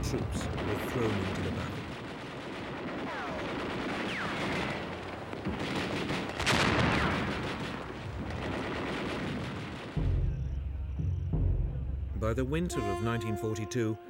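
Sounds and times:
gunfire: 0.0s - 10.5s
explosions: 0.0s - 10.9s
low steady music: 10.0s - 14.0s.

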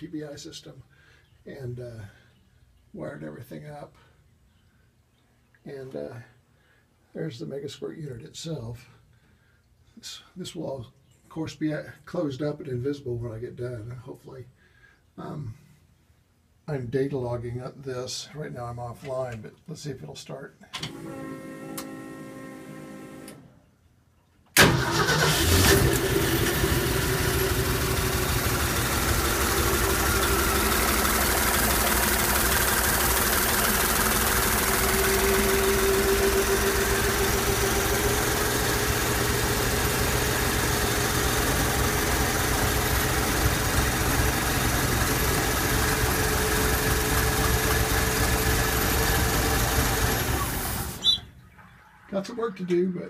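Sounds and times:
car engine starting and idling: 24.6s - 52.1s.

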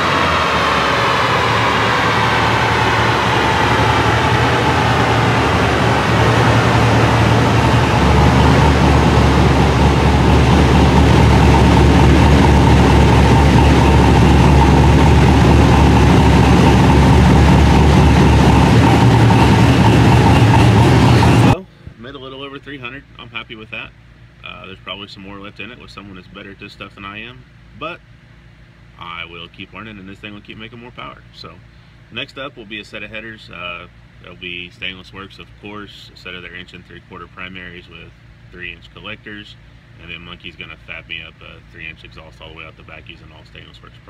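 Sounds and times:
engine and rollers winding down: 0.0s - 21.6s
engine idling: 0.0s - 21.8s.

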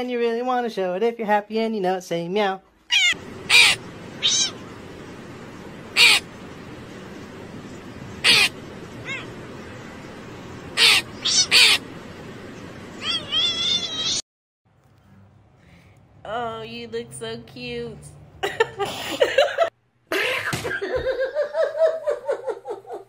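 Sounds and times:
crow cawing: 3.0s - 4.7s, 5.8s - 6.6s, 8.2s - 9.9s, 10.7s - 11.9s
background hiss: 3.0s - 14.2s.

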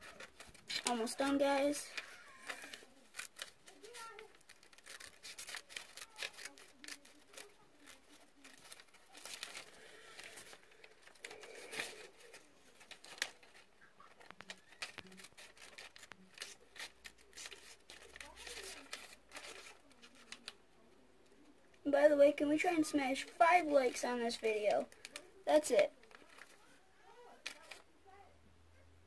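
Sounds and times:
paper rustling: 0.0s - 20.6s, 22.1s - 26.7s, 27.3s - 27.9s
scissors snipping paper: 0.0s - 20.6s, 27.4s - 27.8s.

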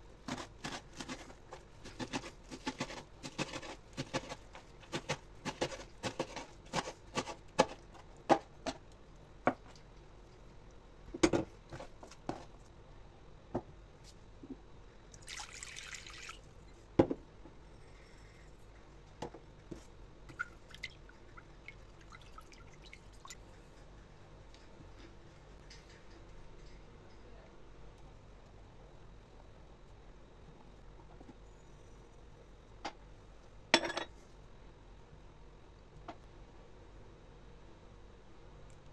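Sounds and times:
knife chopping on wooden board: 1.8s - 8.5s
water pouring into glass bowl: 15.2s - 16.4s, 20.4s - 23.4s.

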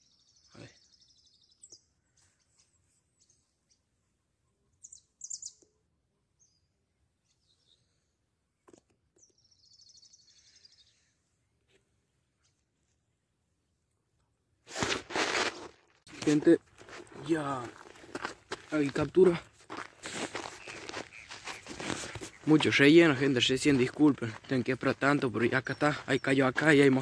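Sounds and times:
songbirds trilling: 0.0s - 8.1s, 9.2s - 11.3s, 18.7s - 27.0s
short bird chirps: 4.7s - 5.8s, 9.2s - 11.4s, 20.5s - 22.5s.

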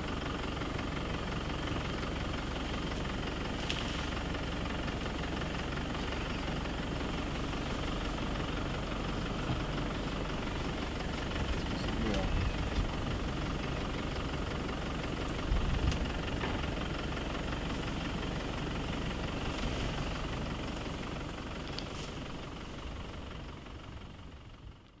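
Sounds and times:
engine idling: 0.0s - 25.0s.

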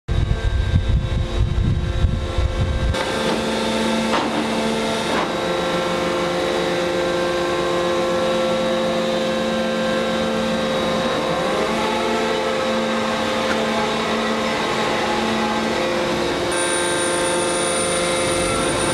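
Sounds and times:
low rumble: 0.1s - 3.0s
forging machine droning hum: 0.1s - 18.9s.

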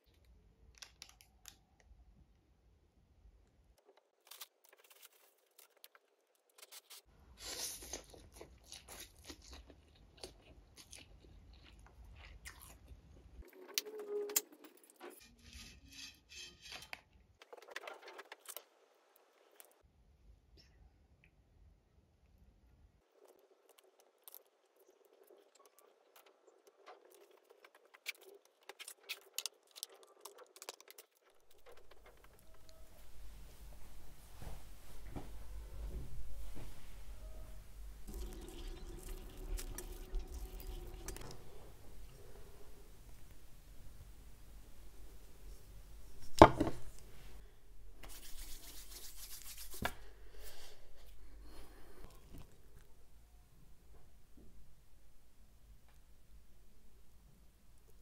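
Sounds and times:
chopsticks crackling on food: 23.2s - 32.8s, 38.1s - 41.4s
palms rubbing together: 48.0s - 50.1s.

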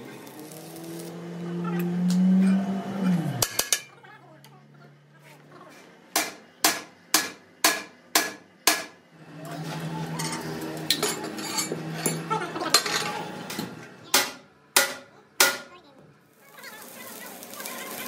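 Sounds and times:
hammer striking steel: 6.1s - 9.0s, 14.1s - 15.8s.

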